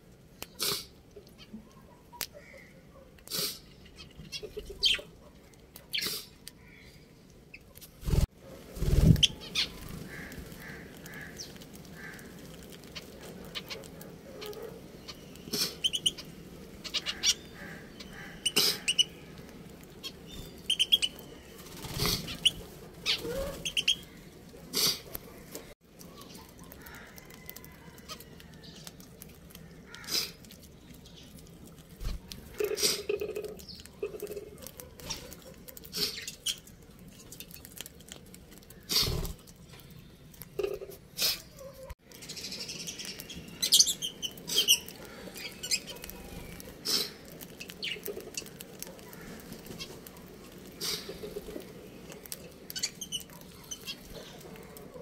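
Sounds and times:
budgerigars chirping: 14.4s - 19.2s, 20.0s - 21.3s, 22.2s - 24.1s.

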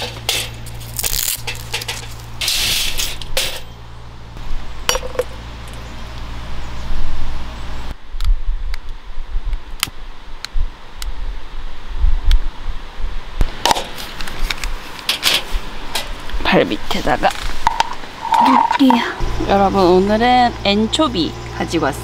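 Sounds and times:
steady low hum: 0.0s - 12.5s, 14.7s - 22.0s
plastic cord rustling: 0.6s - 2.4s.

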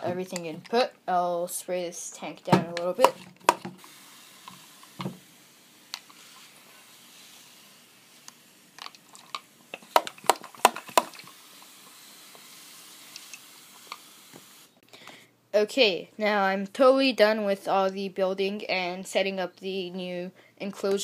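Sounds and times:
faint hiss: 0.0s - 16.6s
mist sprayer spritzes: 3.8s - 8.8s, 10.5s - 14.7s.

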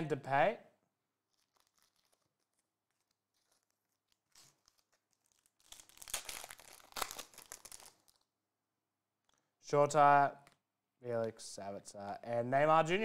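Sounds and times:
faint foil rustle: 1.2s - 8.2s
foil wrapper crinkling: 1.2s - 8.3s.

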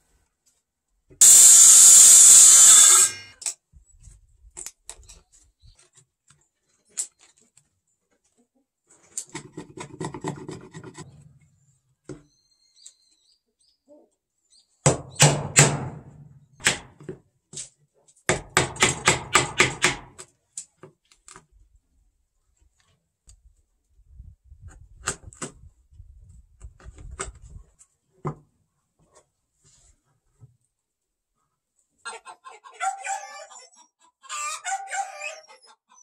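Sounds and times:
hammer striking chisel: 18.3s - 20.1s.

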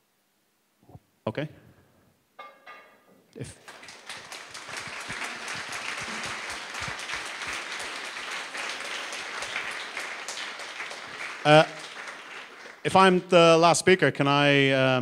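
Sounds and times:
audience applauding: 3.6s - 13.5s.

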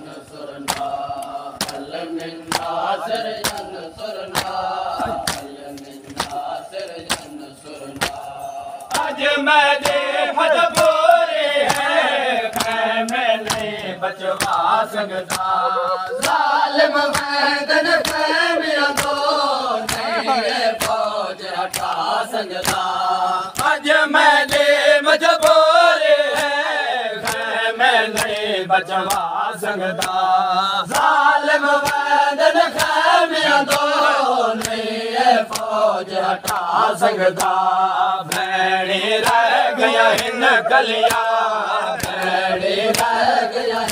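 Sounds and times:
men chanting together: 0.0s - 43.9s.

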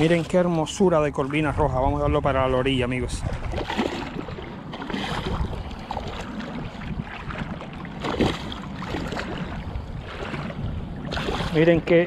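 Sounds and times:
fish splashing in shallow water: 3.2s - 11.9s.

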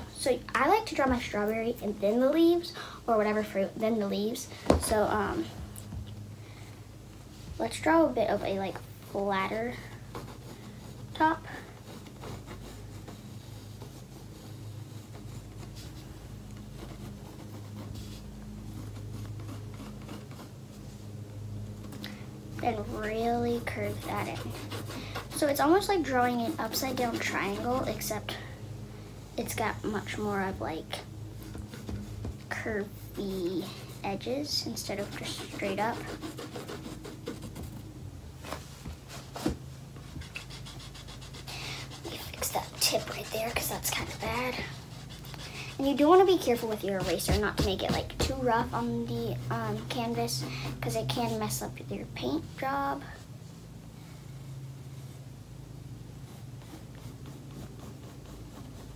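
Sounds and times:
steady low hum: 0.0s - 58.9s
pencil scratching on canvas: 9.1s - 20.6s, 22.5s - 28.4s, 29.4s - 37.9s, 39.1s - 52.0s, 56.2s - 58.9s.

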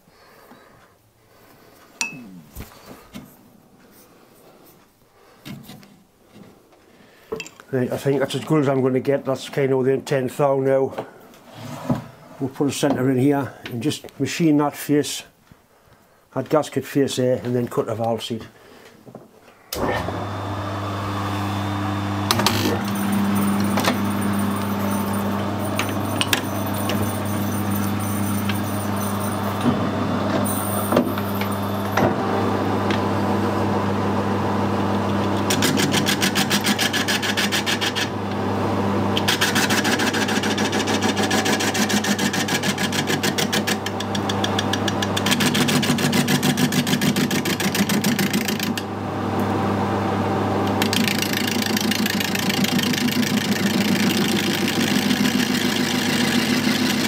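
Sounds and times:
lathe motor and gearbox hum: 19.7s - 57.0s.

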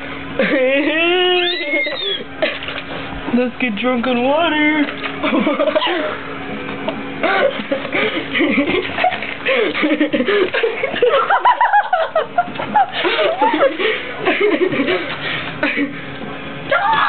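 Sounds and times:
girls laughing: 0.4s - 2.7s, 5.2s - 6.2s, 7.2s - 16.1s.

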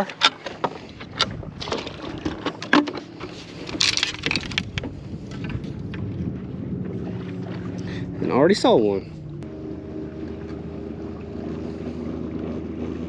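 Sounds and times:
fishing rods clicking and knocking: 0.0s - 6.1s.

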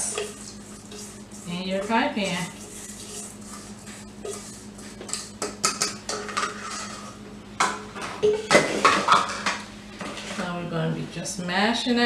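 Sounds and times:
metal bowl scraping glass dish: 0.0s - 5.2s, 6.2s - 7.2s.

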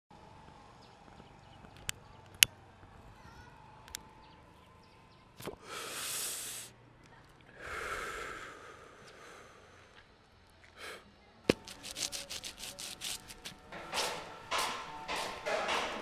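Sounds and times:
breathy exhalations: 7.5s - 10.0s
knock: 13.8s - 16.0s.

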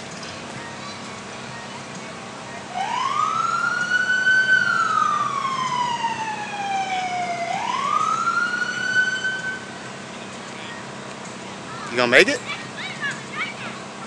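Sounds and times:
fire engine siren wailing: 2.6s - 9.8s.

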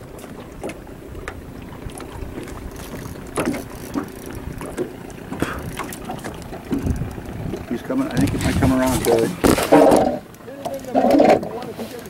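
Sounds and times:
water lapping around a boat: 0.0s - 12.0s
wind on microphone: 1.2s - 9.7s.

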